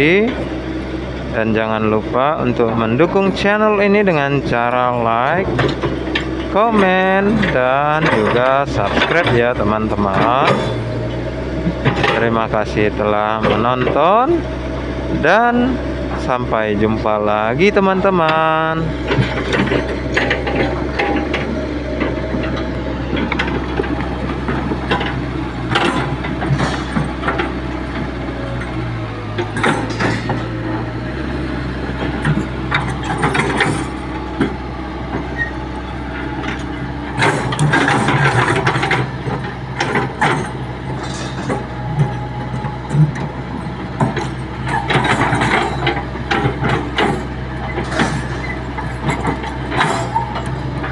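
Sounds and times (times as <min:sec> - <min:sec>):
excavator diesel engine running: 0:00.0 - 0:50.9
metallic clatter of bucket: 0:39.8 - 0:42.2.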